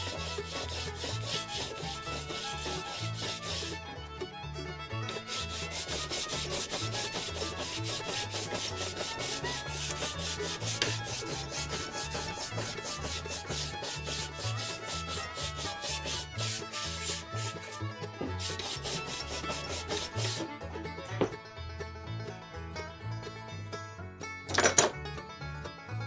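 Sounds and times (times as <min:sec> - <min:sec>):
sandpaper rasping on wood: 0:00.0 - 0:03.8, 0:05.1 - 0:20.5.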